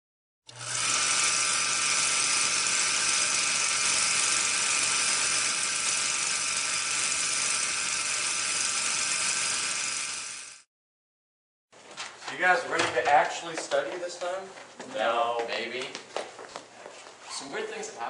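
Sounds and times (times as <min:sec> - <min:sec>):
film projector whirring rattle: 0:00.5 - 0:10.7.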